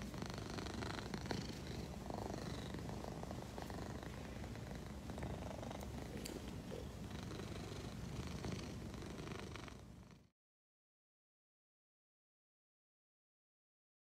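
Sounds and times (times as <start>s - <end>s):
cat purring: 0.0s - 10.3s.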